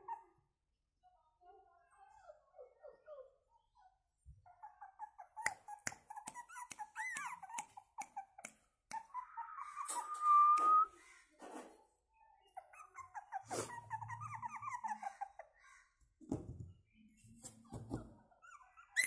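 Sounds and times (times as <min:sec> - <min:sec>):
puppy whining: 0:02.1 - 0:10.9, 0:12.4 - 0:15.6, 0:18.0 - 0:19.0
puppies whimpering: 0:04.5 - 0:10.9, 0:12.4 - 0:15.6, 0:18.3 - 0:19.0.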